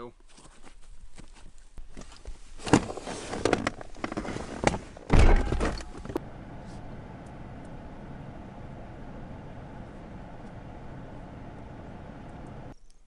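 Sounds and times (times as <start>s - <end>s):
handling knocks and clunks: 1.9s - 6.2s
heavy deep thump: 5.1s - 6.2s
faint steady hiss: 5.8s - 13.0s.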